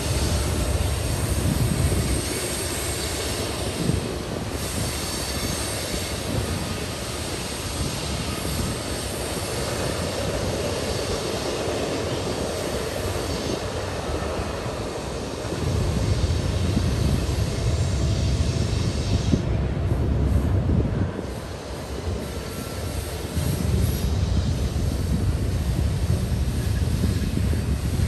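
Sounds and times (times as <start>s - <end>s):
freight train wheels on rail: 0.0s - 28.0s.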